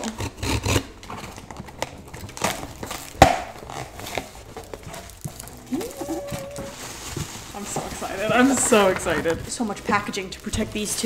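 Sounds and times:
box cutter scraping tape: 0:00.0 - 0:04.9.

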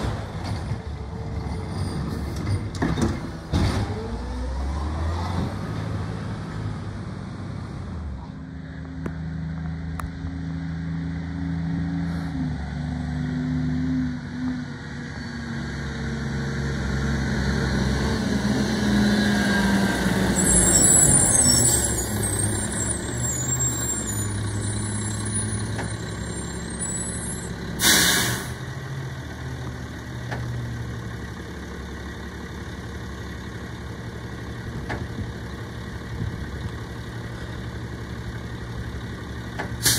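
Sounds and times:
garbage truck diesel engine: 0:00.0 - 0:39.9
air brake hiss: 0:27.8 - 0:28.6.

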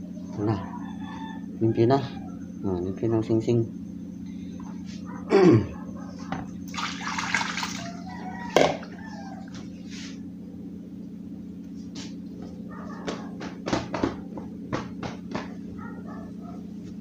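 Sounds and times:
low hum: 0:00.0 - 0:17.0
water splashing into sink: 0:06.7 - 0:07.9.

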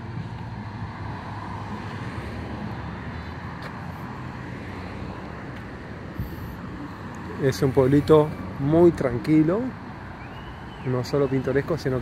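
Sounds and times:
tyres on road: 0:00.0 - 0:12.0.

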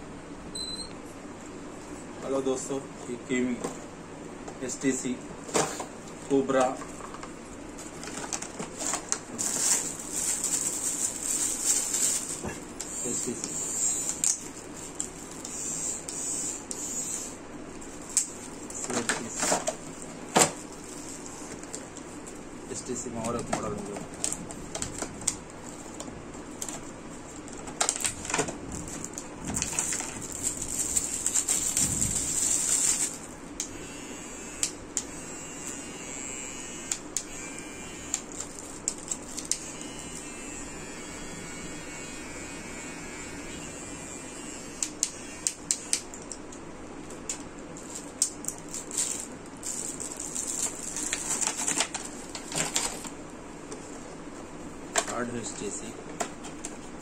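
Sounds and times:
cardboard and plastic packaging rustling: 0:05.4 - 0:13.4, 0:17.8 - 0:33.4, 0:47.1 - 0:53.2.

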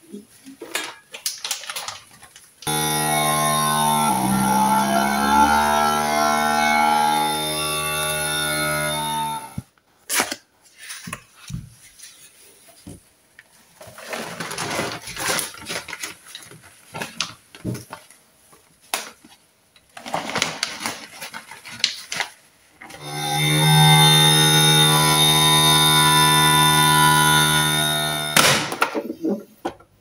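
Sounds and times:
plastic bag crinkling: 0:01.2 - 0:02.5.

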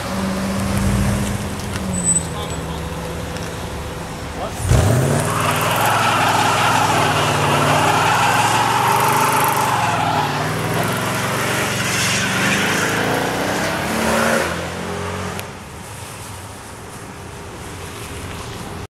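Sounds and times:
tyres screeching: 0:00.3 - 0:13.5
engine at high revs: 0:04.4 - 0:15.5.

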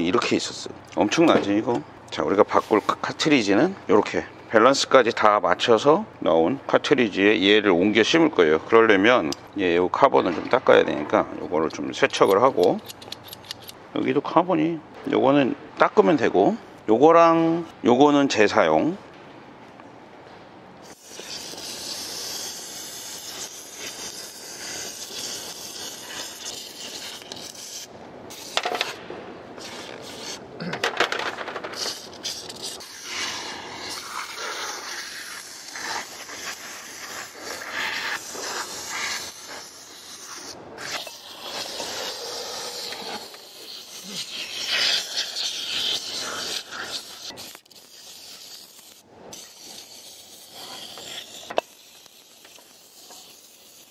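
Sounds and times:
aerosol spray can hissing: 0:20.8 - 0:29.0, 0:29.6 - 0:30.4, 0:31.7 - 0:53.9.

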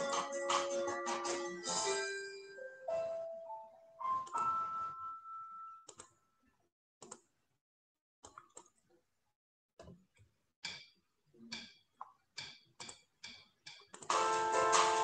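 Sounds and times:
mouse and keyboard clicks: 0:13.7 - 0:14.1.

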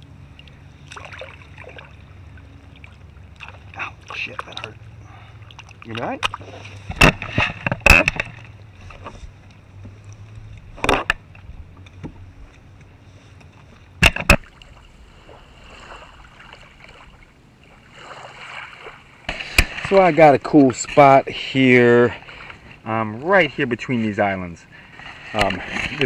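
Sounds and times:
water sloshing against kayak hull: 0:00.3 - 0:24.1, 0:24.7 - 0:26.0
sharp knocks or splashes: 0:03.4 - 0:04.8, 0:05.5 - 0:08.5, 0:14.0 - 0:14.8, 0:17.9 - 0:20.4.

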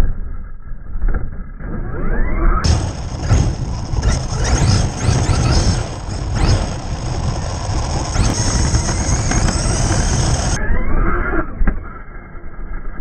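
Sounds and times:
tyre noise: 0:02.6 - 0:10.6
wind noise: 0:02.6 - 0:10.8
electric motor whining: 0:02.6 - 0:10.9.

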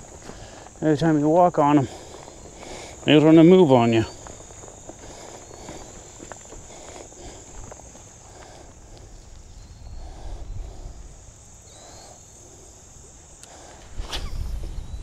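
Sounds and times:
insects buzzing: 0:00.0 - 0:15.0
wind on microphone: 0:08.8 - 0:11.4, 0:13.6 - 0:15.0.

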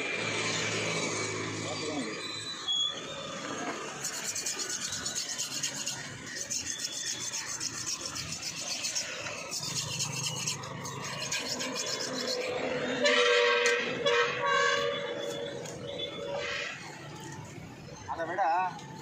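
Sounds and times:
rubbing and scraping: 0:03.4 - 0:17.5
loud horn: 0:12.9 - 0:15.4.

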